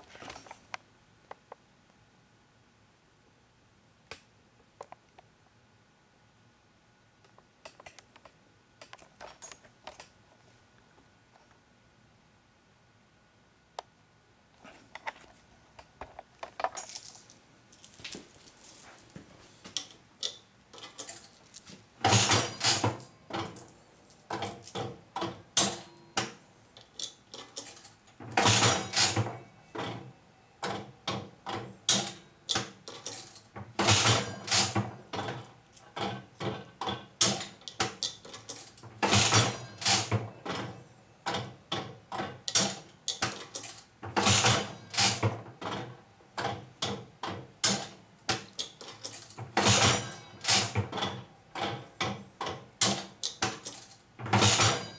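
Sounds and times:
reels clicking and clunking: 19.7s - 23.7s, 24.3s - 54.9s
slot machine handle clatter: 22.0s - 23.7s, 27.0s - 30.0s, 31.9s - 35.4s, 37.2s - 40.7s, 41.3s - 45.3s, 48.6s - 51.8s, 52.8s - 54.9s.

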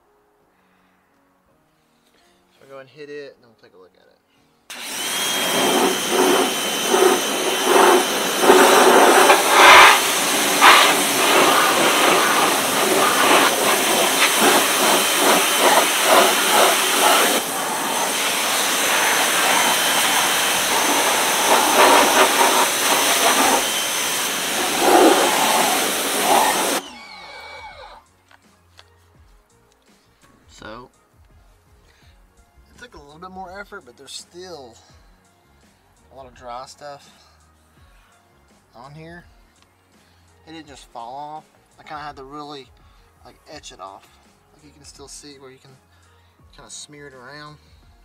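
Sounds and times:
pressure washer jet hissing: 4.7s - 27.0s.

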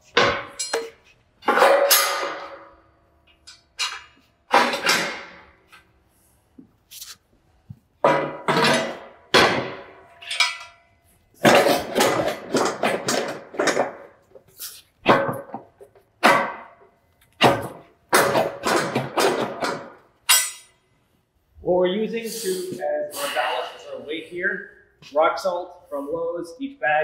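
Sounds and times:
metal fork blades clanking: 10.1s - 10.9s, 20.3s - 20.8s.

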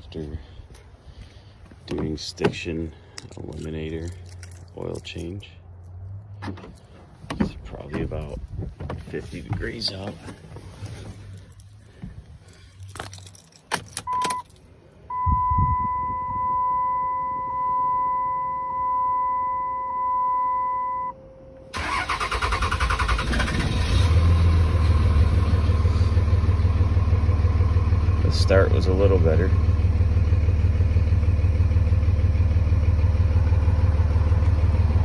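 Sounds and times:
keys rattling in ignition: 1.8s - 14.8s, 21.8s - 23.6s
diesel engine cranking: 21.6s - 35.0s
diesel engine idling: 21.8s - 35.0s.

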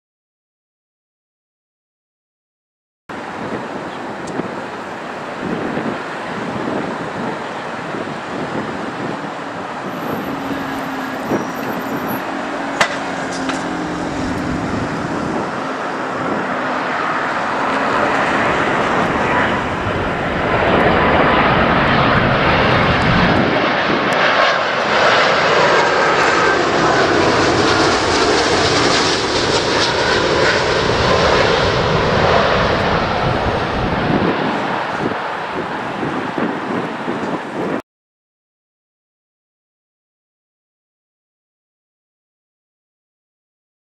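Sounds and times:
jet engines roaring: 3.1s - 37.8s.

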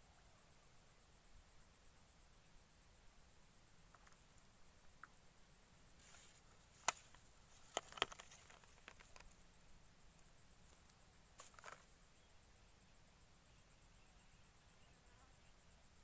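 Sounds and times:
insects chirring: 0.0s - 16.0s
fishing pole clicks and taps: 6.8s - 9.4s.

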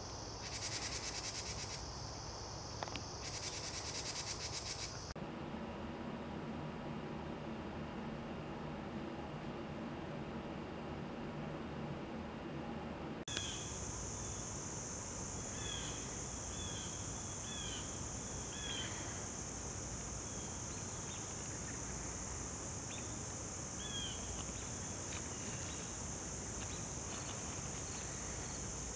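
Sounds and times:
shrill insect chorus: 0.0s - 5.2s, 13.3s - 28.9s.

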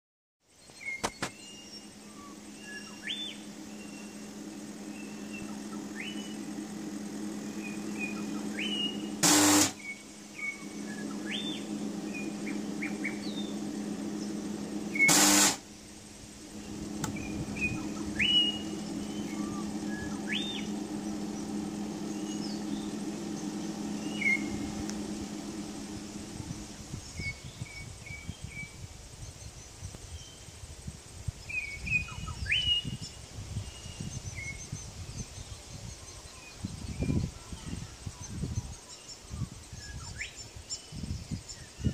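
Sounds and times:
birds chirping: 0.6s - 27.6s
spot welder humming: 0.8s - 27.2s
loud weld pulses: 3.6s - 27.0s.

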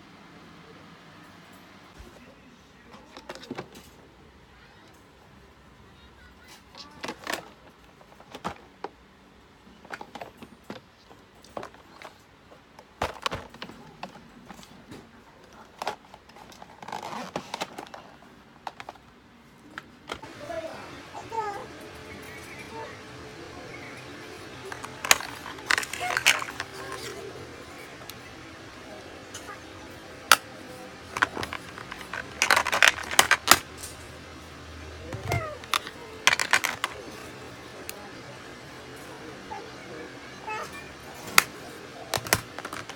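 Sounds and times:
plastic drawers clacking and knocking: 3.0s - 3.9s, 7.0s - 9.0s, 12.8s - 19.1s, 24.7s - 27.2s, 31.0s - 33.9s, 35.0s - 37.1s, 41.2s - 42.9s
plastic cases clicking and clattering: 7.0s - 9.0s, 12.8s - 19.1s, 24.7s - 27.2s, 31.0s - 34.0s, 35.0s - 37.1s, 41.2s - 42.9s.

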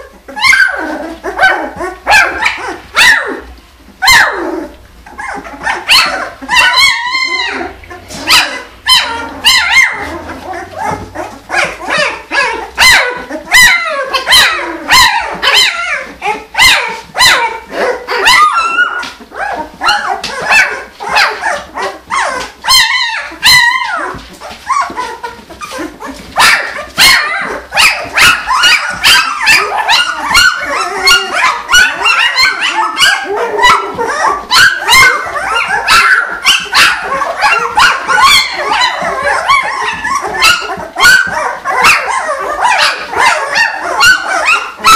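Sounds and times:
puppies yipping and whining: 0.0s - 44.9s.

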